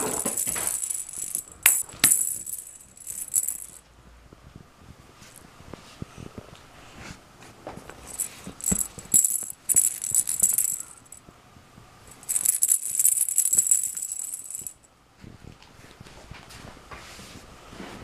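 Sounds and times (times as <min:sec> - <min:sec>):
cat toy ball rattling: 0:00.0 - 0:03.8, 0:08.0 - 0:11.2, 0:12.1 - 0:14.8.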